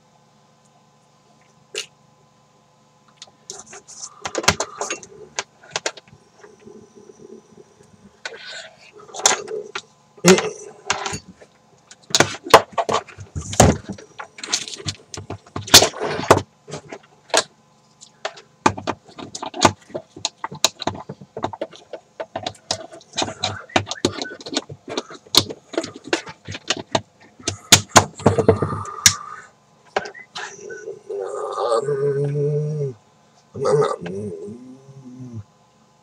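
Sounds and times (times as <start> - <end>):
handling clicks and rattles: 9.1 - 29.2.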